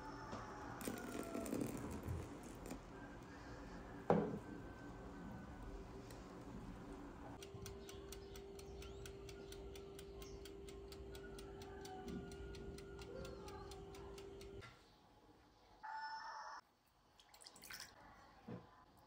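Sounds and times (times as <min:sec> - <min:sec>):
oven humming: 0:00.0 - 0:14.7
rapid ticking: 0:07.4 - 0:14.6.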